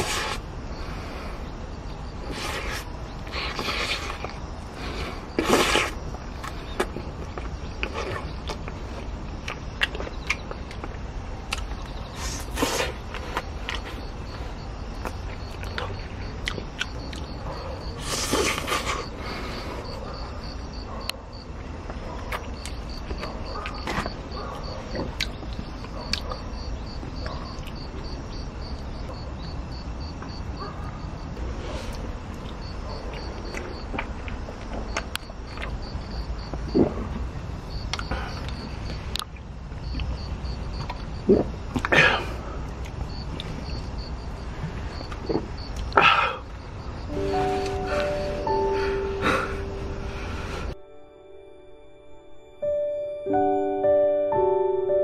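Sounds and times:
loud sucking noise: 0.0s - 1.4s
insect chirping: 0.0s - 55.0s
person chewing: 5.3s - 8.8s, 9.4s - 13.9s, 15.0s - 17.3s.

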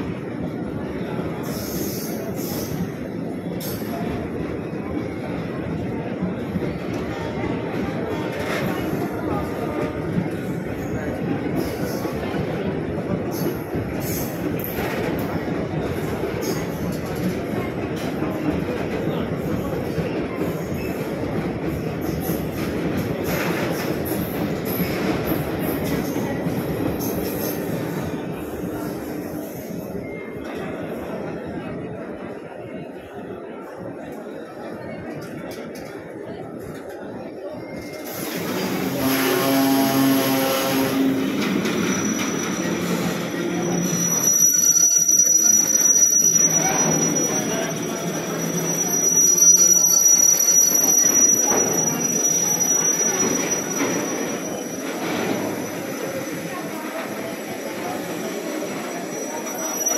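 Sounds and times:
train wheels rumbling on rails: 0.0s - 59.9s
freight train rumbling past: 38.1s - 59.9s
high metallic squeals: 40.0s - 56.1s.

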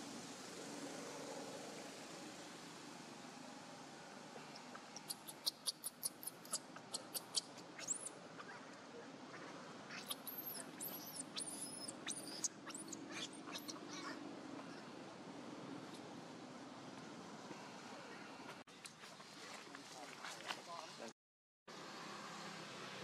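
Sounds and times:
high-pitched animal squeaks: 5.0s - 8.6s, 9.3s - 14.8s.

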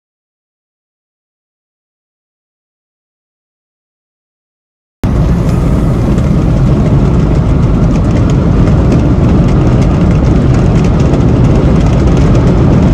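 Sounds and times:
car cabin driving rumble: 5.0s - 12.9s.

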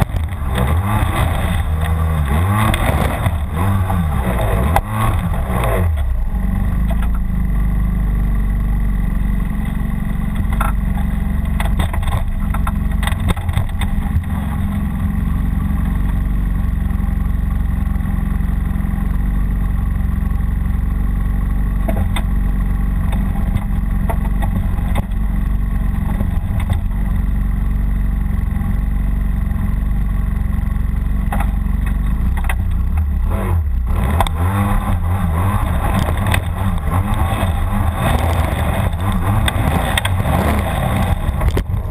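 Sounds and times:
snowmobile engine idling: 0.0s - 41.9s.

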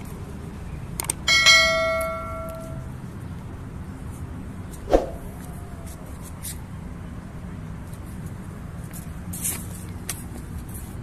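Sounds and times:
bright bell ding: 1.3s - 2.9s
short sharp sound: 4.9s - 5.4s.

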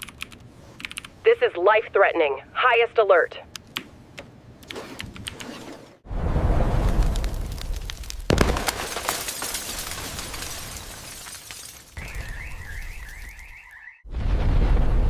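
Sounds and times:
deep rumbling storm wind: 6.0s - 8.0s, 14.1s - 15.0s
crackling rushing noise: 6.1s - 8.6s
high warbling electronic alarm: 12.0s - 14.1s
sharp thunderclap: 14.1s - 15.0s.

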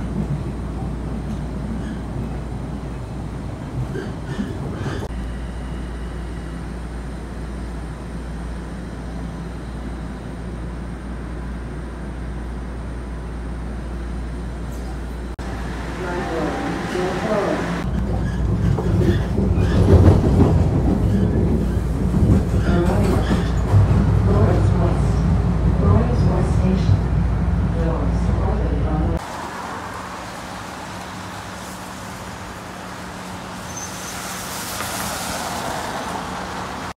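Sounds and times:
subway train rumble: 0.0s - 36.9s
bus idling hum: 4.6s - 18.4s, 27.8s - 34.8s
tyre hiss on wet road: 33.9s - 36.2s.

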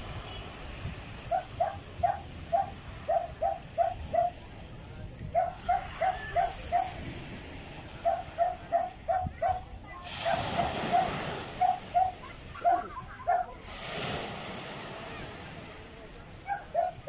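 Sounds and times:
dog barking high-pitched: 1.3s - 4.4s, 5.4s - 6.9s, 8.0s - 13.5s, 16.5s - 17.0s.

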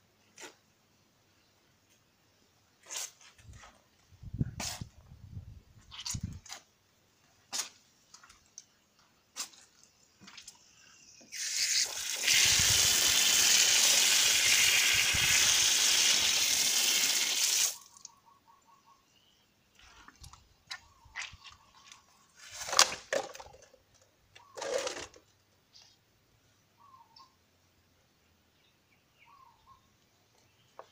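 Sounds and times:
water running from tap splashing: 11.4s - 17.8s.

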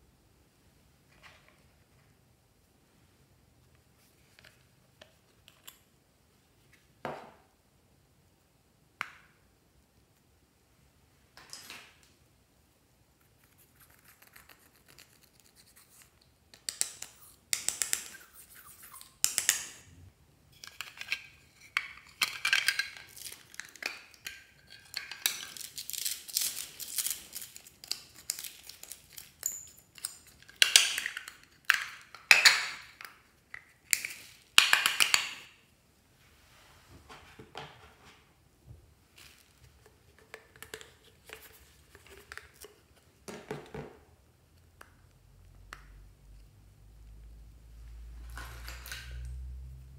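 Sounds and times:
plastic items crackling and clicking: 20.6s - 35.0s.

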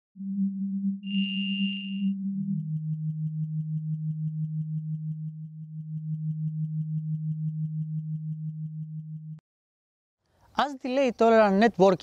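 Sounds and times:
pulsing synthesized drone: 2.0s - 9.4s.

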